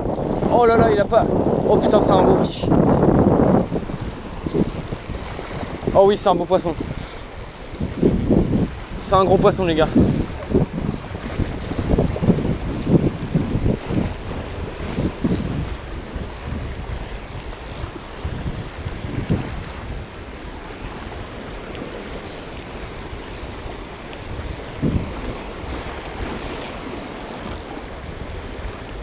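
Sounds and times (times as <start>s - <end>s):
wind bumps on microphone: 0.0s - 20.2s, 24.3s - 26.6s
fishing reel ticking: 0.0s - 29.0s.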